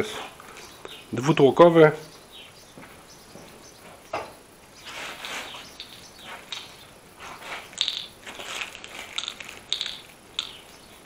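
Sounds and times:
plastic bag crinkling: 0:07.5 - 0:10.7.

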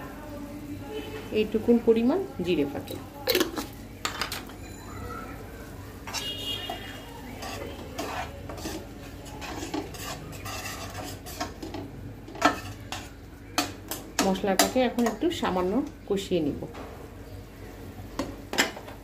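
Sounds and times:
faint sizzle: 0:00.0 - 0:19.0
metal spatula scraping pot: 0:06.1 - 0:13.2.

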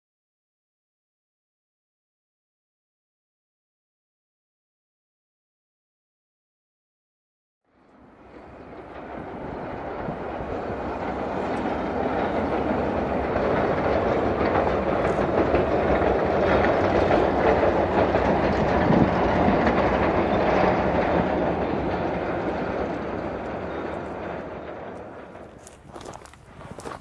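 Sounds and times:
electric train running over bridge: 0:07.7 - 0:27.0.

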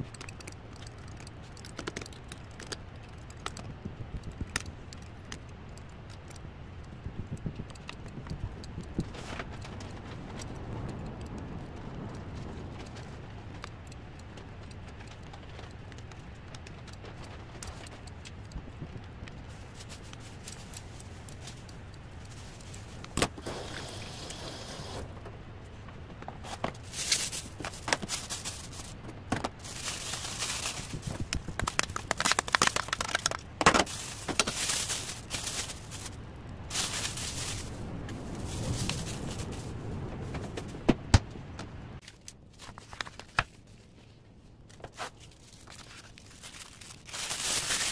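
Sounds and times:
plastic bag crinkling: 0:26.5 - 0:39.8, 0:44.9 - 0:47.9.

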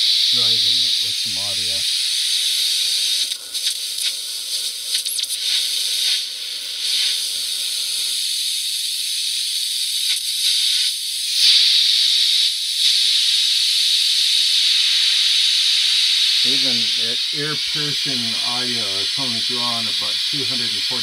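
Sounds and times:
shrill radio receiver hiss: 0:00.0 - 0:13.2, 0:14.5 - 0:21.0.

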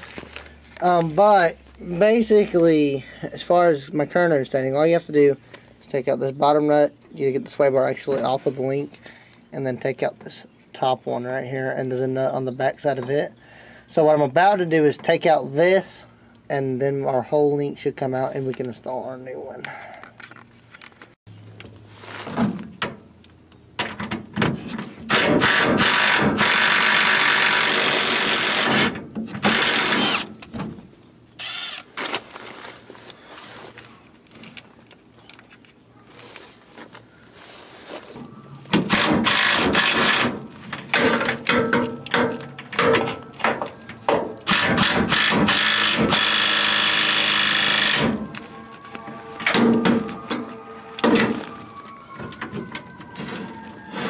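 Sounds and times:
impact wrench running: 0:25.1 - 0:30.3, 0:38.8 - 0:40.4, 0:44.4 - 0:48.4.

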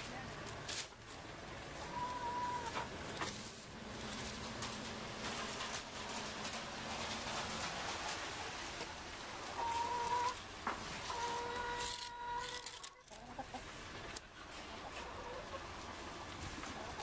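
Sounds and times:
chicken calling: 0:01.8 - 0:03.0, 0:09.5 - 0:10.4, 0:11.0 - 0:13.7.

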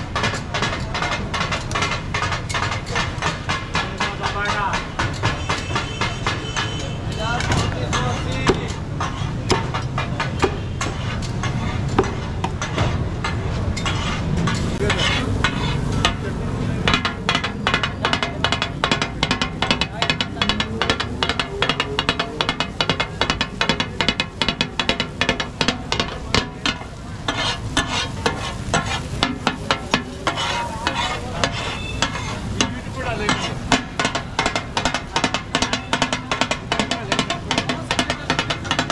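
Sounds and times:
spatulas clattering on griddle: 0:00.0 - 0:38.9
steady sizzling: 0:00.0 - 0:38.9
street traffic hum: 0:00.0 - 0:38.9
cleaver chopping meat on wood: 0:16.9 - 0:38.9.

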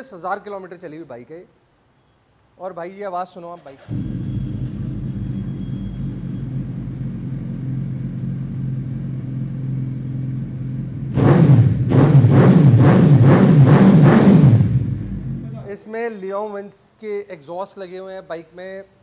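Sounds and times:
motorcycle engine idling: 0:03.9 - 0:11.2
loud pulsing sound: 0:03.9 - 0:15.6.

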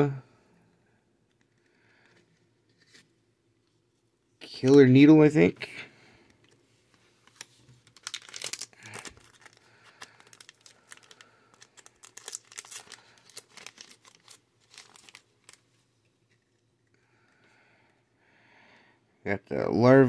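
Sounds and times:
packaging crinkling and rustling: 0:06.4 - 0:16.7.

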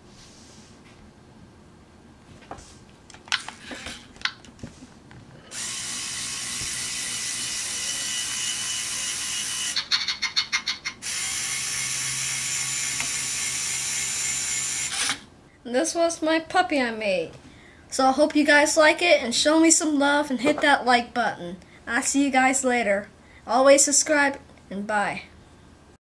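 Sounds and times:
robot motors whirring: 0:05.6 - 0:09.8.

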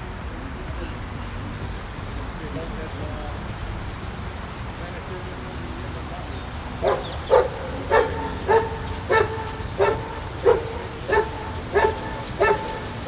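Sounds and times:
dog barking: 0:06.8 - 0:12.9.

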